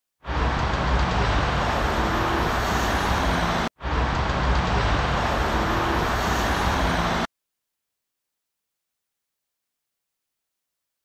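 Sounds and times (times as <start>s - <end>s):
city street traffic: 0.2s - 7.3s.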